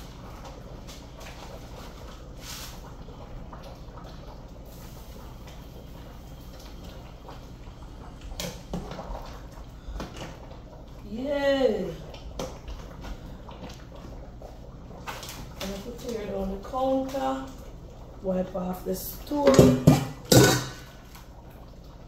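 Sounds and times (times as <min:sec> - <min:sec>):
pots and utensils clattering: 0:19.3 - 0:21.0.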